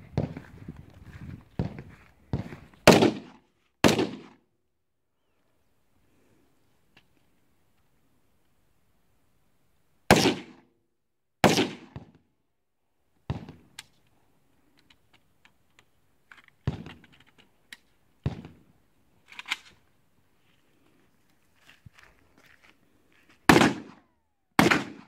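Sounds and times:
loud gunshots with echo: 2.9s - 4.3s, 10.1s - 10.6s, 11.4s - 12.0s, 23.5s - 24.0s, 24.6s - 25.0s.

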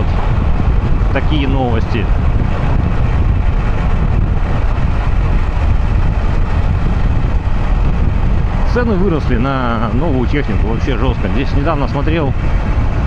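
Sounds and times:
road noise: 0.0s - 13.0s
wind rushing on microphone: 0.0s - 13.0s
motorcycle engine: 2.0s - 8.7s.

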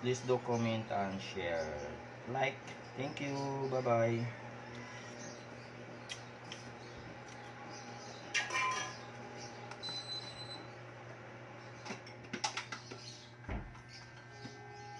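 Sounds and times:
steady low hum: 0.0s - 14.9s
glass lid clinking on pot: 8.4s - 9.0s.

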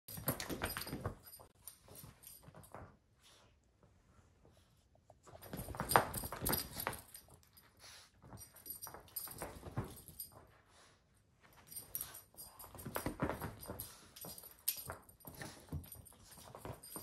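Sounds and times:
paws scrabbling on a rug: 4.4s - 17.0s.

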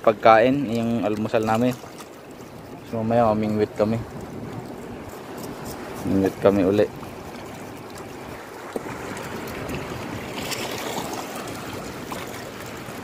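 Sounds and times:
moving water: 0.0s - 13.0s.

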